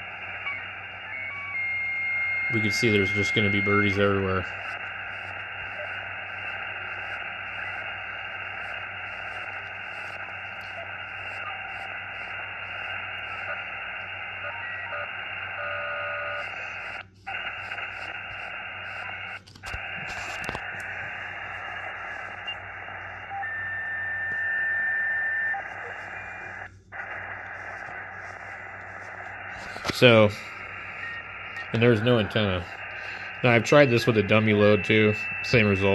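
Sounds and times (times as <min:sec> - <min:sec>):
radio receiver hiss: 0:00.0 - 0:35.9.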